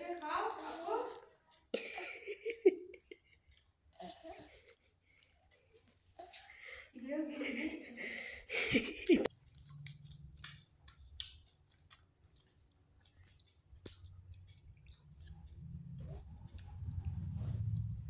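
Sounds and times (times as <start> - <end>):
child chewing: 0.6 - 7.0, 8.4 - 18.0
wet mouth smacking: 9.5 - 15.8.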